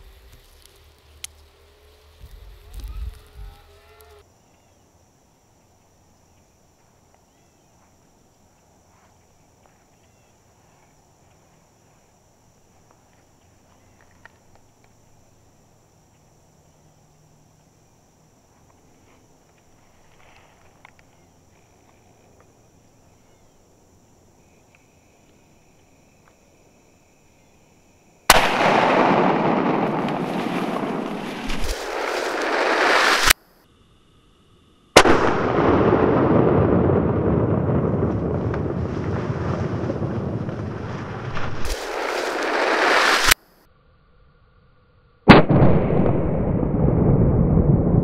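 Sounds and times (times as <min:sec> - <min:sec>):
rifle shot with rolling echo: 0:28.3 - 0:33.3, 0:35.0 - 0:38.6, 0:45.3 - 0:48.0.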